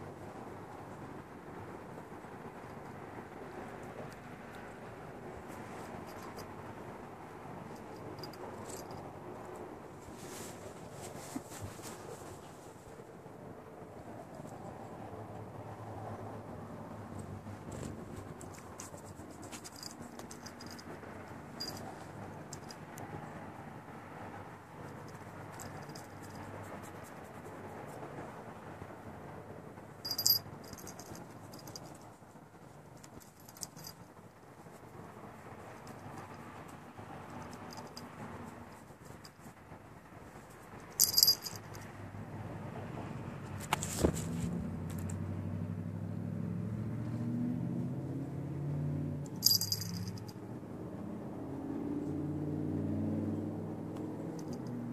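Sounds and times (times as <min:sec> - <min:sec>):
cat collar bell jingling: 0:05.8 - 0:06.6, 0:07.6 - 0:09.5, 0:18.4 - 0:23.3, 0:24.8 - 0:27.0, 0:30.0 - 0:32.2, 0:33.0 - 0:34.0, 0:37.2 - 0:39.5, 0:40.5 - 0:41.9, 0:49.3 - 0:50.4, 0:54.2 - 0:54.9.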